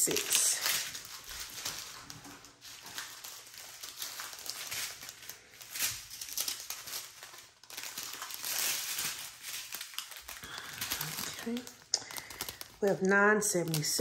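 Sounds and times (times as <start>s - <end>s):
plastic bags crinkling: 0.0s - 14.0s.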